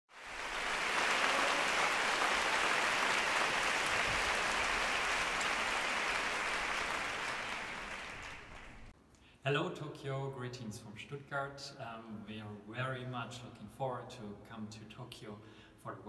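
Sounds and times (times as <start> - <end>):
audience applause: 0.1 - 8.9.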